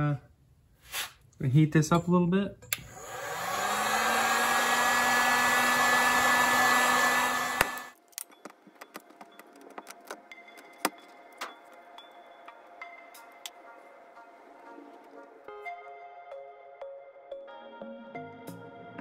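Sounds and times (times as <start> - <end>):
heat gun blowing air: 2.8 - 8.0.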